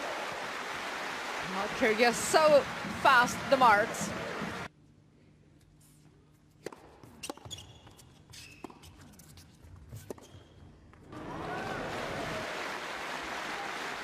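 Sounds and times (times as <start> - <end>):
crowd noise: 0.0 - 4.7, 11.1 - 14.0
shoe squeaks: 7.0 - 10.8.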